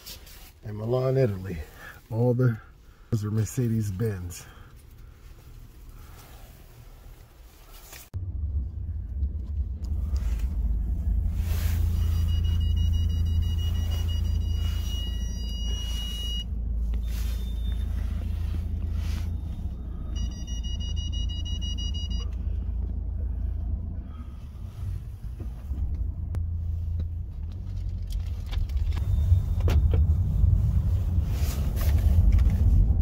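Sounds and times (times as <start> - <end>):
car driving rumble inside cabin: 4.0 - 33.0
high electronic beeping: 11.8 - 18.2.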